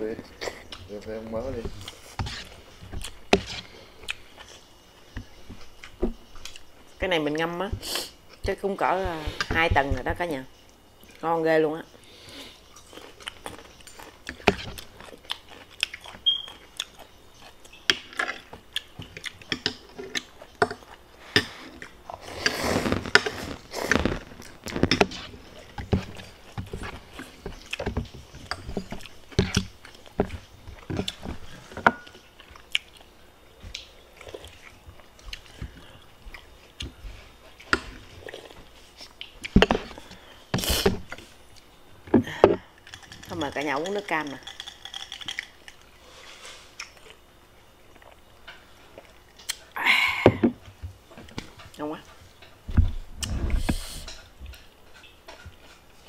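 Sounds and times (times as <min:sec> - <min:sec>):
person chewing crunchy food: 0:00.3 - 0:07.0, 0:12.1 - 0:41.8.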